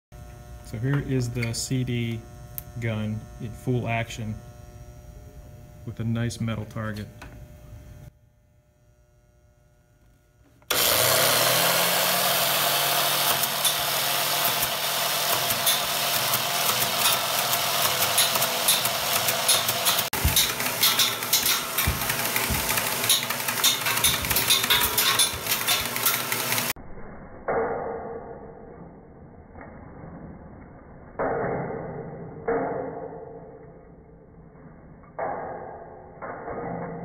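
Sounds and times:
motor humming: 7.1s - 26.8s
discs shattering against metal: 13.2s - 26.6s.

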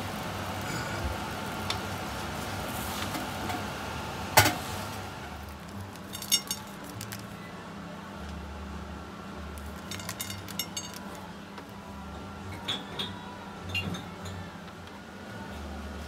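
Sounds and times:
kitchen hiss and hum: 0.0s - 16.0s
china clinking: 6.0s - 7.2s, 9.7s - 11.2s.

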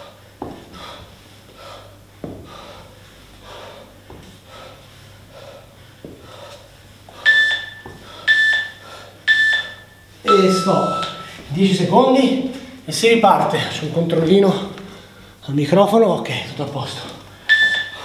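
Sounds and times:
man breathing heavily: 0.0s - 10.3s, 14.4s - 15.4s, 17.2s - 18.0s
timer beeps: 7.2s - 11.4s, 17.4s - 18.0s.

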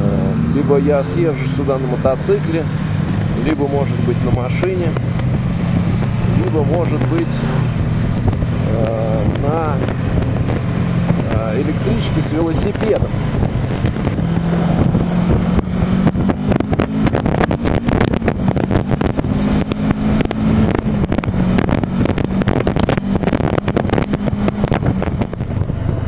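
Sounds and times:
motorcycle engine cruising: 0.0s - 26.0s
wind buffeting microphone: 0.0s - 26.0s.

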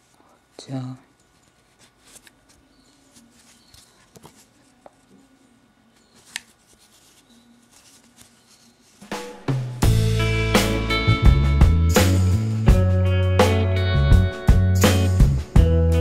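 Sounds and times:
yarn rustling: 0.0s - 5.4s, 6.0s - 9.5s
music: 9.0s - 16.0s.

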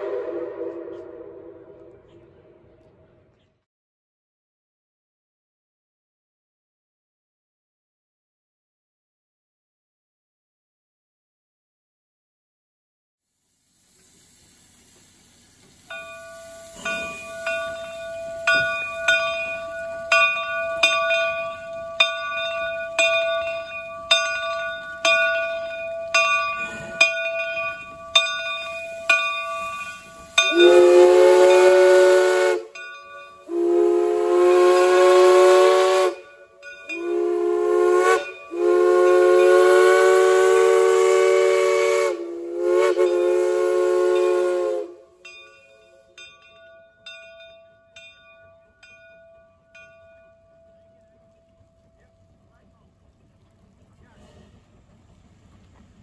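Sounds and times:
steam whistle blasts: 0.0s - 2.2s, 28.4s - 45.3s
locomotive bell ringing: 15.8s - 41.2s, 43.0s - 52.6s.

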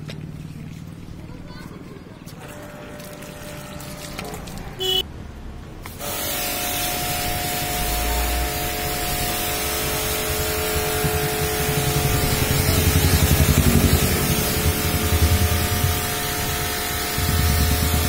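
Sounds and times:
pressure washer spraying: 5.9s - 18.0s.

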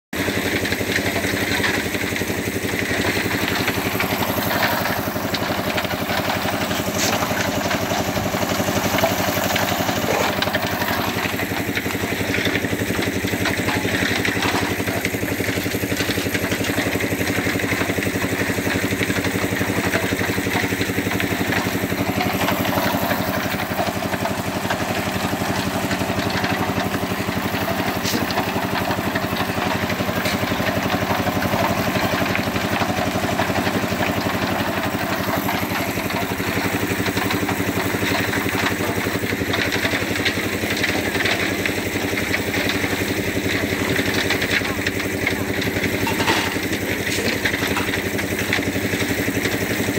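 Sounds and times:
concrete mixer engine running: 0.1s - 49.9s.

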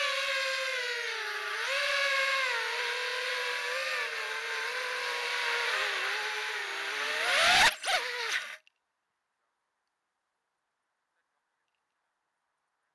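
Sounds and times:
drone motors whining: 0.0s - 8.6s.

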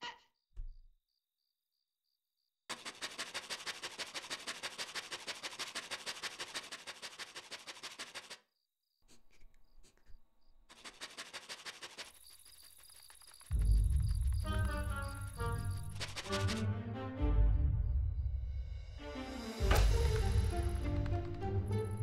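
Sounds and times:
faint crickets chirping: 0.2s - 2.6s, 8.6s - 10.8s, 11.9s - 16.1s
flour sifter rasping clicks: 2.7s - 8.5s, 10.7s - 13.6s, 15.8s - 16.6s.

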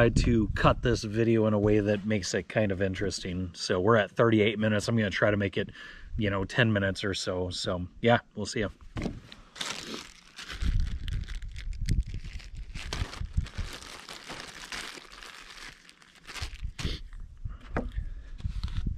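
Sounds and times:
plastic bag crinkling: 9.4s - 17.0s.

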